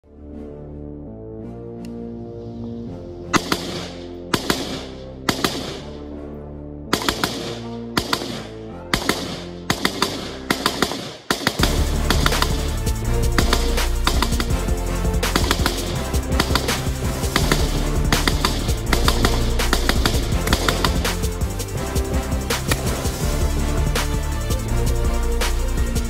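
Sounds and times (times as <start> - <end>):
background music: 0.0 - 26.0
handgun shots: 3.4 - 6.0, 7.0 - 12.7, 15.3 - 21.1, 22.5 - 22.9.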